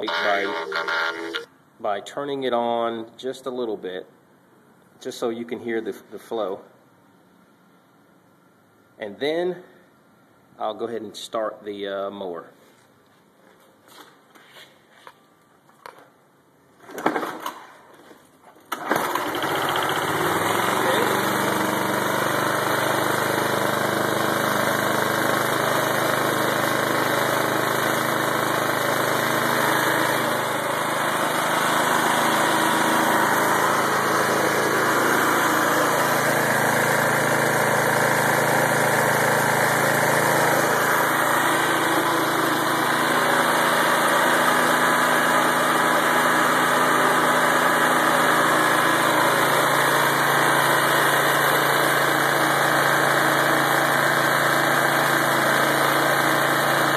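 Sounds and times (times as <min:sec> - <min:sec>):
small lawnmower engine idling: 0:00.0 - 0:01.5, 0:18.7 - 0:56.9.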